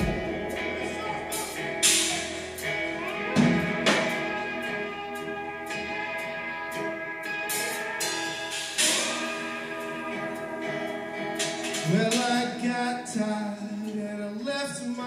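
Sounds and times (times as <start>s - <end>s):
rock band playing: 0.0s - 14.0s
cymbal crashes: 1.3s - 12.2s.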